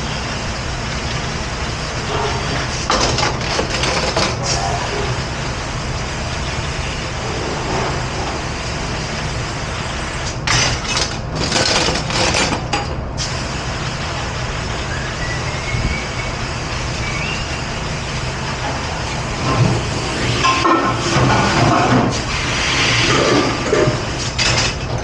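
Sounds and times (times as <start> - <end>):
low machinery hum: 0.0 - 25.0
water spray hissing on steel: 22.1 - 24.2.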